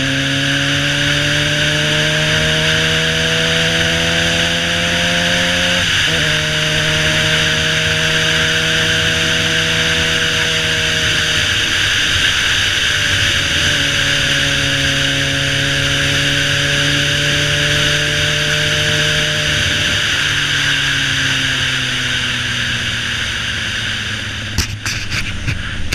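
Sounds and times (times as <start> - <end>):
motorcycle engine cruising: 0.0 - 25.9
wind rush: 22.9 - 25.9.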